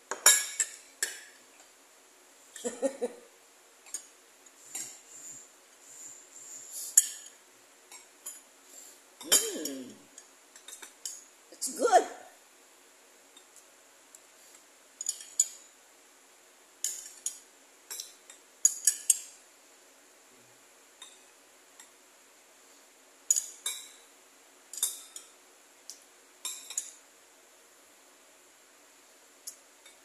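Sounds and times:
metal spoon clinking on ceramic bowl: 0.1 - 1.2, 9.2 - 11.2, 26.4 - 27.0.

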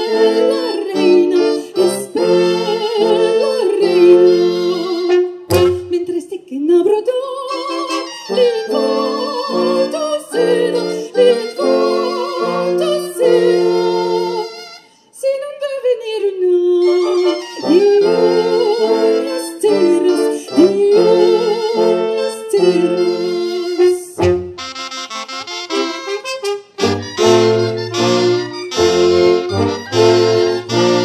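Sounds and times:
wind band playing chords: 0.0 - 5.6, 7.9 - 14.6, 17.0 - 31.0
voices singing with vibrato: 0.0 - 5.8, 7.4 - 14.6, 16.9 - 24.2.

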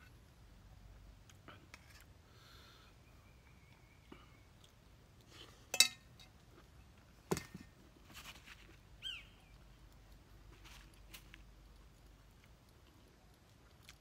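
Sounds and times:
spoon clinking on bowl: 5.8 - 6.1.

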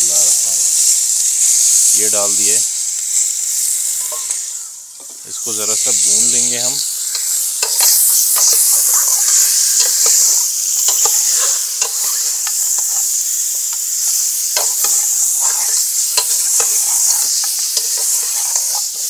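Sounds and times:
chicken sizzling in hot oil: 0.0 - 19.0
metal ladle scraping pot: 7.6 - 13.2, 14.6 - 19.0.

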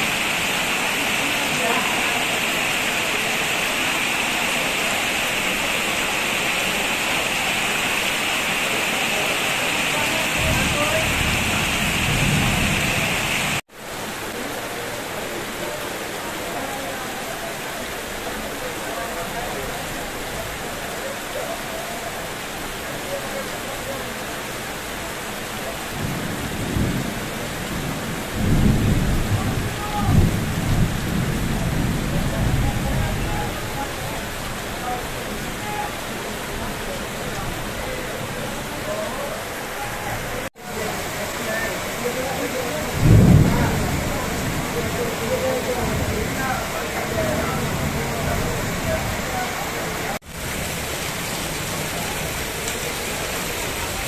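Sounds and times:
heavy rain pouring: 0.0 - 54.0
water splashing onto bricks: 50.2 - 54.0.

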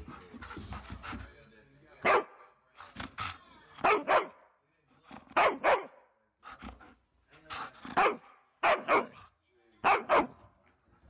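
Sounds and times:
dog barking: 2.0 - 2.4, 3.8 - 4.4, 5.4 - 6.1, 8.0 - 9.2, 9.8 - 10.4.

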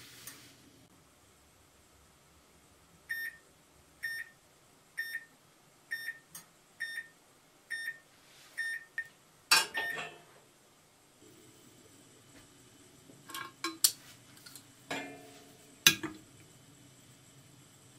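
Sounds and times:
metal pan clanking and rattling: 9.5 - 10.3, 13.3 - 16.2.

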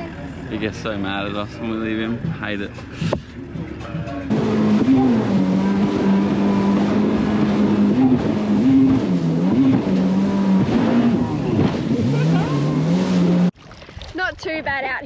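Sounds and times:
jet ski engine droning: 0.0 - 13.6
rushing water and wind: 4.3 - 15.0.

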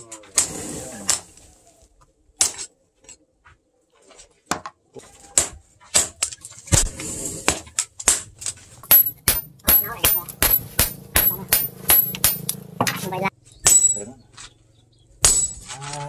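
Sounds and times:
hammer striking steel on anvil: 8.8 - 14.0.

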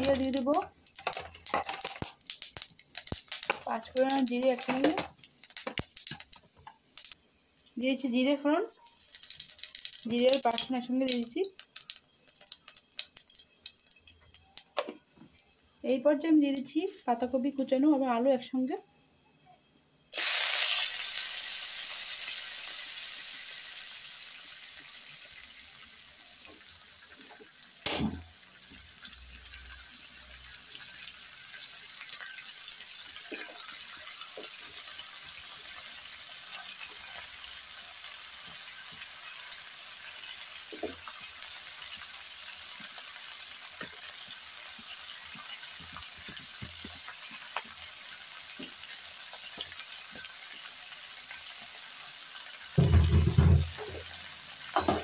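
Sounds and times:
small crackles: 0.0 - 7.2, 8.7 - 15.6, 40.3 - 51.6
vegetables sizzling in hot oil: 0.0 - 18.7, 19.7 - 55.0
sharp knock: 27.8 - 28.3.

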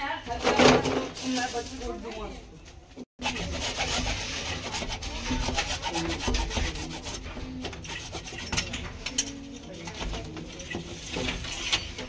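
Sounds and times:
hacksaw sawing plastic pipe: 3.2 - 8.7.

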